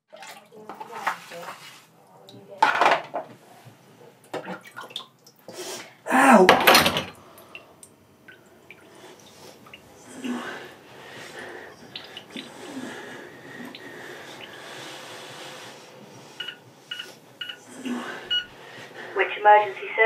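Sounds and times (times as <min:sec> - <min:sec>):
clatter in metal sink: 0:00.2 - 0:01.8, 0:02.6 - 0:03.2
man crying out in pain: 0:06.1 - 0:06.7
man groaning: 0:06.1 - 0:06.7.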